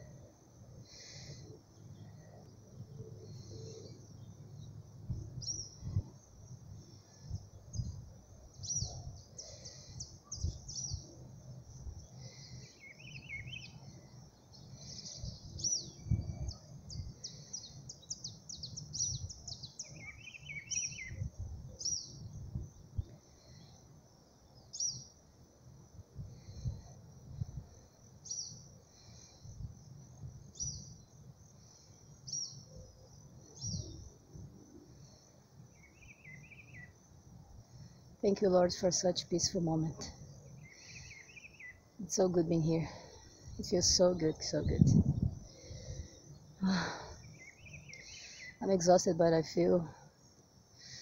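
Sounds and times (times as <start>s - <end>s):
birds chirping and trilling: 7.0s - 11.2s, 12.0s - 22.8s, 24.5s - 25.1s, 28.2s - 29.5s, 30.5s - 34.1s, 35.0s - 37.0s, 39.9s - 49.1s
low rumble on microphone: 14.7s - 17.3s, 43.5s - 46.9s.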